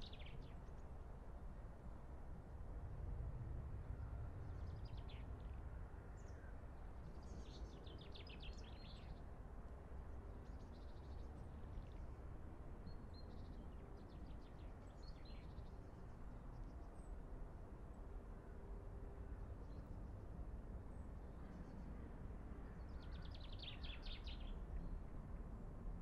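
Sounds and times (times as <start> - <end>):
faint low rumble: 1.8 - 15.9
small songbirds singing: 22.8 - 25.0.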